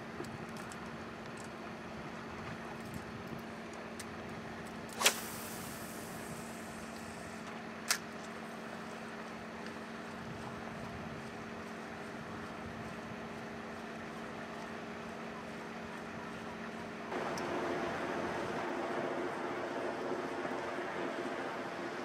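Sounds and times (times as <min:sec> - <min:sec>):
fishing rod swish: 0:04.9 - 0:05.8
line hissing off reel: 0:04.9 - 0:07.4
boat motor hum: 0:08.4 - 0:22.0.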